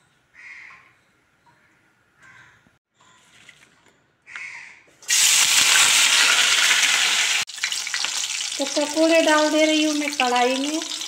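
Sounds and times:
vegetables sizzling in hot oil: 5.1 - 11.0.

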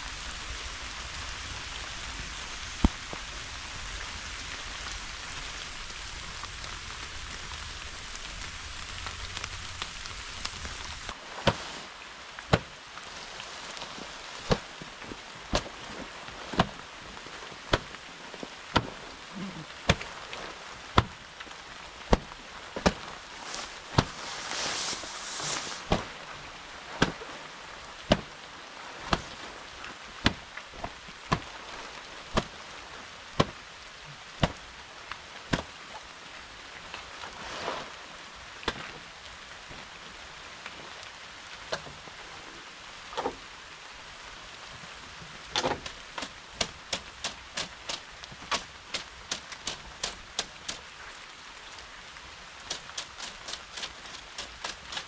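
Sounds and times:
steady rain: 0.0 - 55.0
brushing swish: 23.5 - 25.9.

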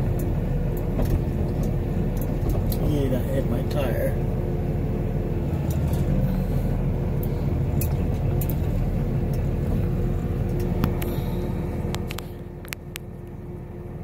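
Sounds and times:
truck engine running: 0.0 - 14.0.

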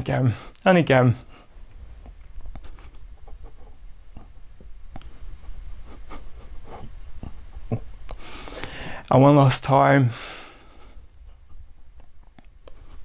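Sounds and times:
low steady hum: 0.0 - 13.0
arms tapping and rustling: 1.3 - 8.3.

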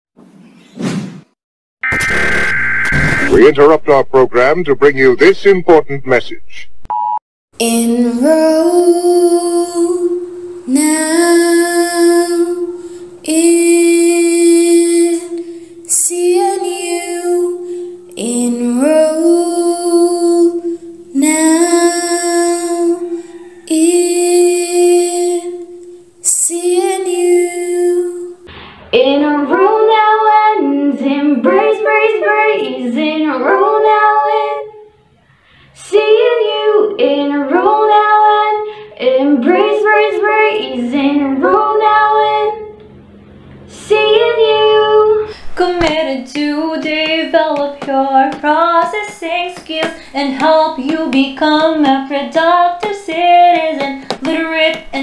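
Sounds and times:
woman singing a jingle: 7.6 - 28.4.

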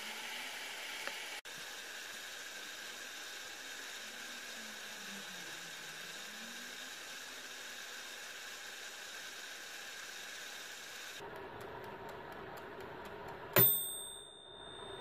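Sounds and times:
steamer hissing: 0.0 - 11.2
dial timer ticking: 2.1 - 15.0
bell ding: 13.6 - 15.0.

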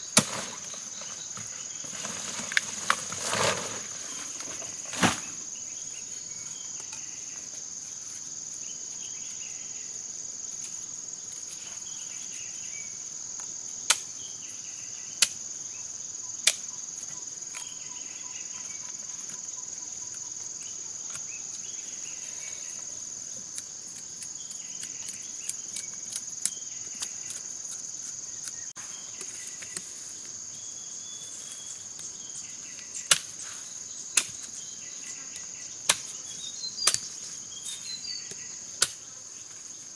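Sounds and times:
machete chopping: 0.2 - 0.7, 33.1 - 33.3, 35.9 - 36.1, 38.8 - 39.0.

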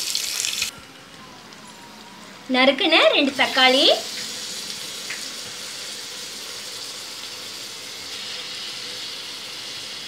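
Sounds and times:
vegetables sizzling in oil: 0.0 - 0.7, 3.0 - 10.0.

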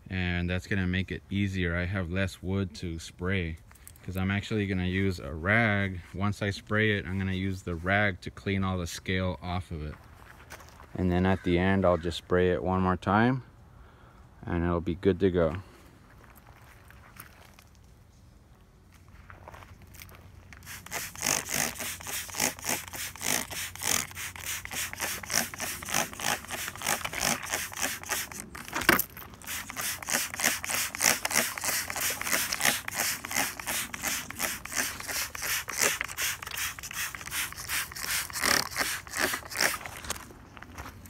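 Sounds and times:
spray bottle squirting: 20.6 - 40.0.

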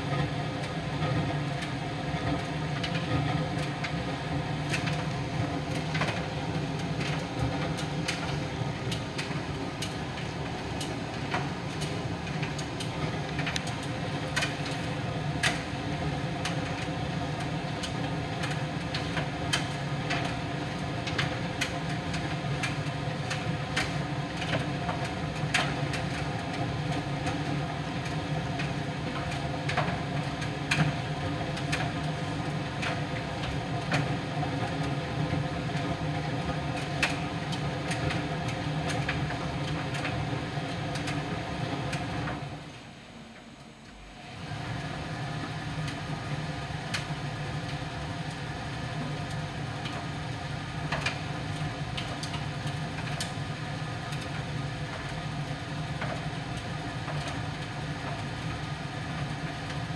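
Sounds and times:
tumble dryer humming: 41.2 - 52.6.

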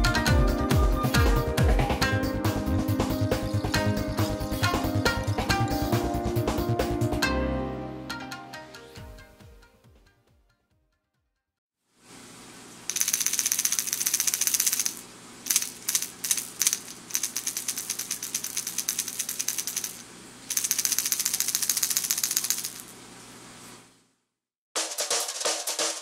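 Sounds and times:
fishing lure rattling: 12.9 - 22.9.

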